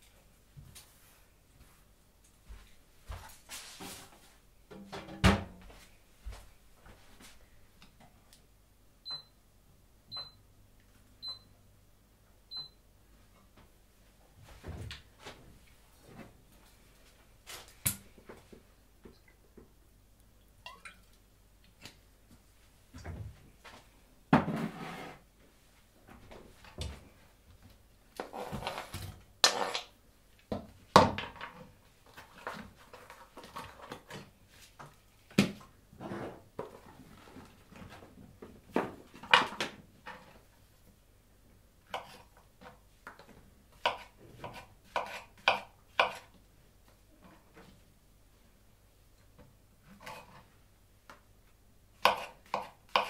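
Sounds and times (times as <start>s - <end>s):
utensil scrapes: 24.5s - 25.3s.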